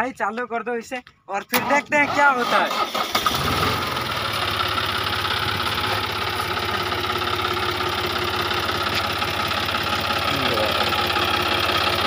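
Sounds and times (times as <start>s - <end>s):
diesel tractor engine idling: 2.7s - 12.0s.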